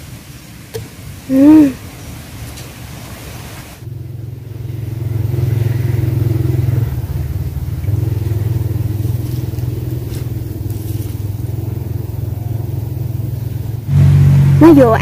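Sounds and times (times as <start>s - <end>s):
engine running with low drone: 3.8s - 15.0s.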